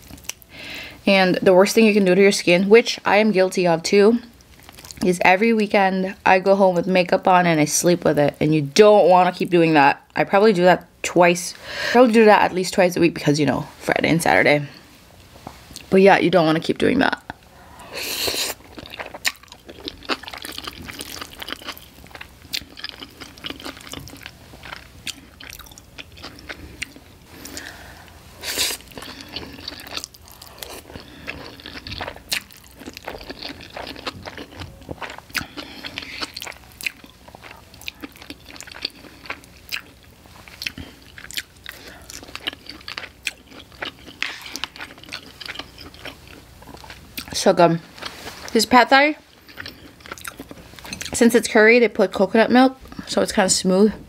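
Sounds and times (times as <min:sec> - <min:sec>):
wet chewing with mouth clicks: 0:18.2 - 0:27.7, 0:28.5 - 0:47.4, 0:49.4 - 0:51.2.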